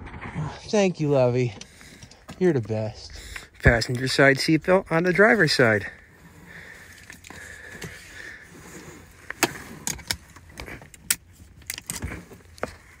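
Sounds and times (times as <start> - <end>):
seatbelt webbing sliding: 6.1 - 13.0
seatbelt buckle clicking: 9.2 - 12.8.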